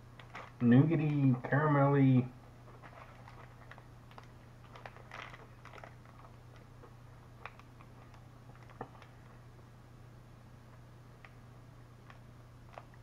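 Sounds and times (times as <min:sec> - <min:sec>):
wrapper crinkling: 0:00.2 - 0:01.2, 0:02.7 - 0:06.7, 0:07.4 - 0:09.4
quiet chewing: 0:02.6 - 0:09.4.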